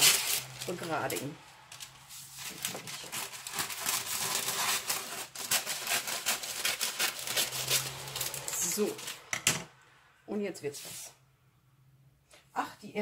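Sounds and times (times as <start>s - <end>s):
baking paper crinkling: 0.0s - 9.3s.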